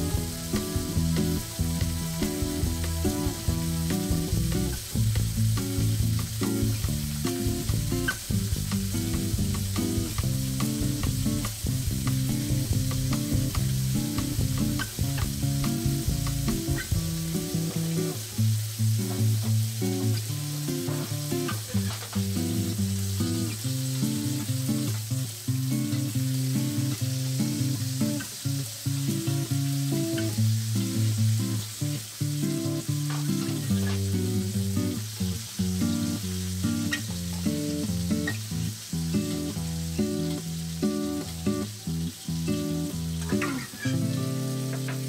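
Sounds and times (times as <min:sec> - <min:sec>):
background music: 0:00.0 - 0:17.0
steak sizzling in a pan: 0:00.0 - 0:45.0.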